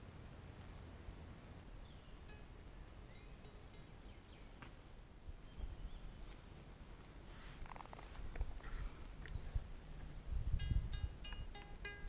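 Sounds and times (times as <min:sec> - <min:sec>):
small birds chirping: 0:00.0 - 0:06.5, 0:07.4 - 0:09.6, 0:11.3 - 0:12.0.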